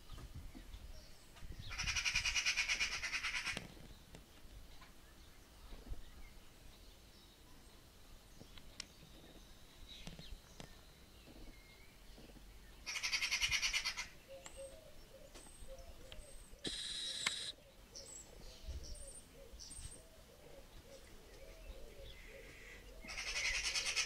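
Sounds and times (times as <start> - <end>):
small birds chirping: 0.0 - 24.0
magpie rattling calls: 1.7 - 3.6, 12.9 - 14.1, 23.1 - 24.0
low bird call: 12.8 - 24.0.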